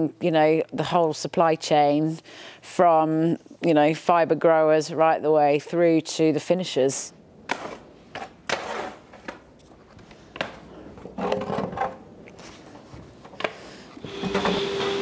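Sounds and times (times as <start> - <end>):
fleece rustling and scraping: 7.5 - 14.0.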